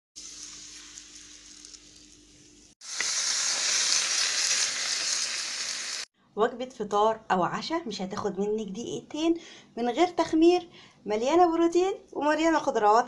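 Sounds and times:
batter sizzling in a frying pan: 0.2s - 6.1s.

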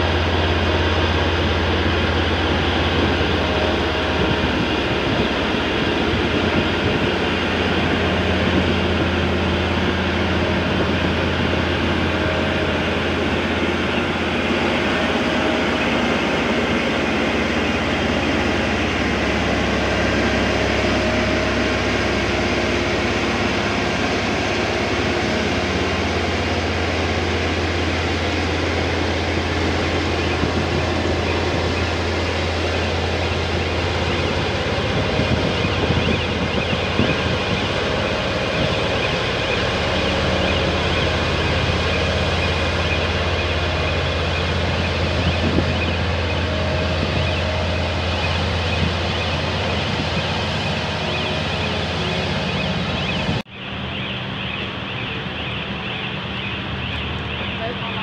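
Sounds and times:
heavy diesel engine under load: 0.0s - 58.0s.

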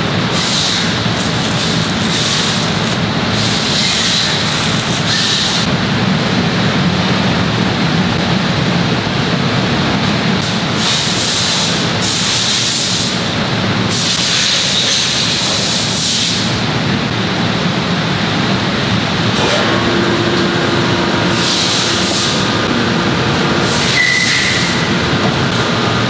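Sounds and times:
factory machinery noise: 0.0s - 26.0s
hissing air: 20.8s - 25.7s.

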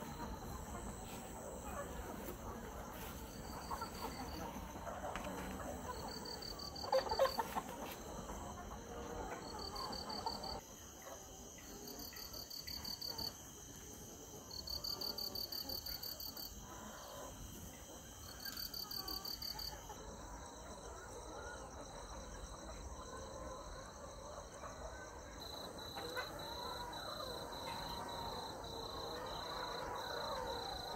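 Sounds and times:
hens clucking softly: 0.0s - 10.6s, 14.8s - 30.9s
insects chirping: 0.0s - 20.8s.

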